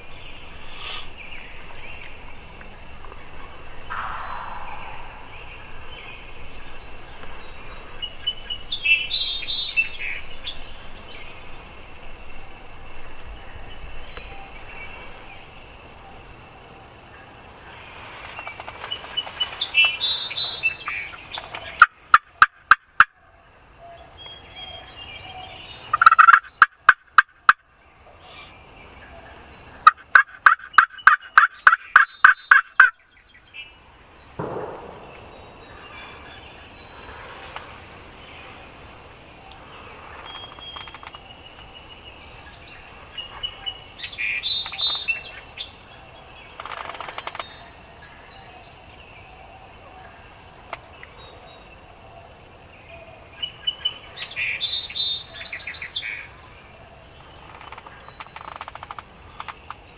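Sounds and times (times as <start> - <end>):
turkey calls: 0.5 - 10.2, 25.9 - 27.6, 29.8 - 33.0
turkey gobbling: 3.9 - 5.9, 25.9 - 27.3, 29.8 - 33.0.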